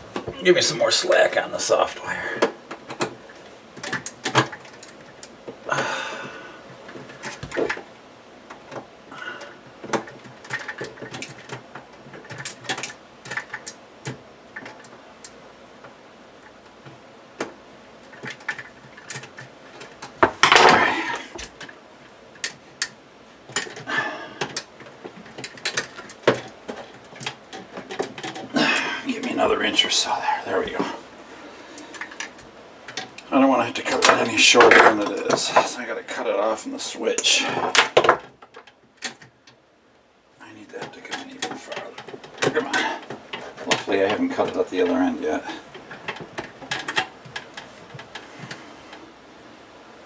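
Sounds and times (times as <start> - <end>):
small clicks taps and scrapes: 2.4 - 5.6, 9.6 - 20.7, 22.4 - 28.5, 40.8 - 49.0.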